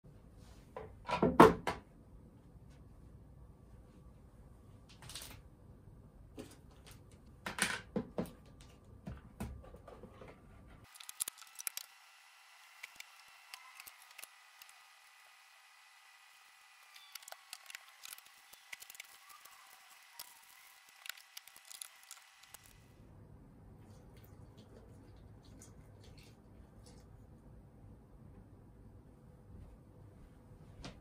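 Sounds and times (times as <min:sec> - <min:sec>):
plastic packaging rustling: 0:10.9 - 0:11.9, 0:17.0 - 0:22.7.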